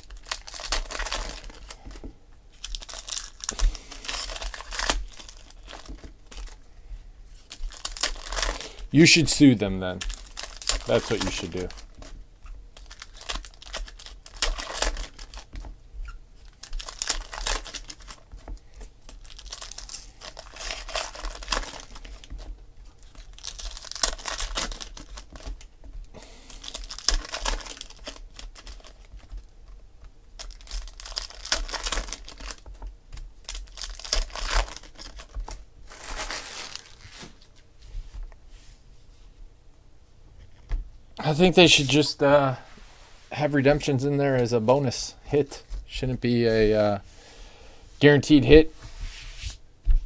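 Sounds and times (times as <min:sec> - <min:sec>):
foil packs crinkling: 0:00.0 - 0:06.7, 0:07.3 - 0:29.8, 0:30.4 - 0:37.6.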